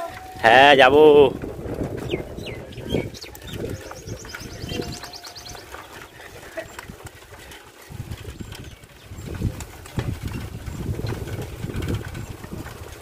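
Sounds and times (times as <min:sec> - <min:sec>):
small birds chirping: 0:02.0 - 0:09.6
rapid high bird trill: 0:02.1 - 0:05.7.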